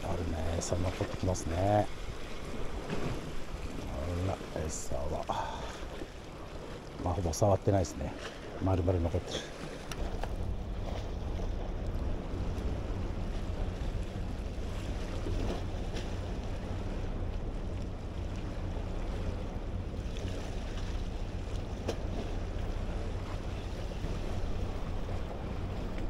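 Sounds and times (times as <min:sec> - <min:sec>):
sea washing against breakwater: 0:00.0 - 0:26.0
faint clicks: 0:09.8 - 0:10.4.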